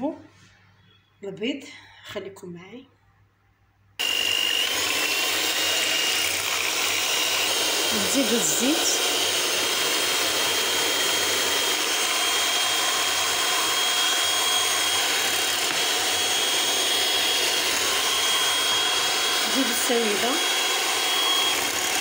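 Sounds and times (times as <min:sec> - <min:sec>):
electric hand mixer whirring: 0:04.0 - 0:22.0.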